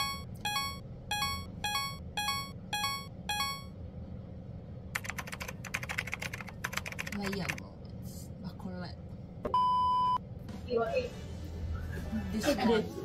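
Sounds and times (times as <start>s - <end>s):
keyboard typing clatter: 5.0s - 7.6s.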